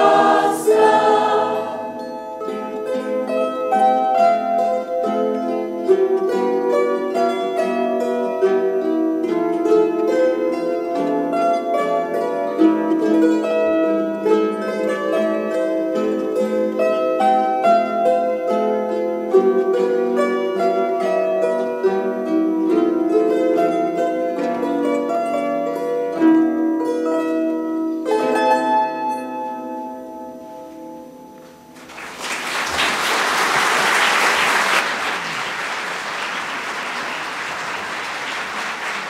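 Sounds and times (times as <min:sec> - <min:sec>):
audience applause: 0:00.0 - 0:01.3, 0:31.8 - 0:39.0
plucked lyres playing: 0:00.0 - 0:32.1.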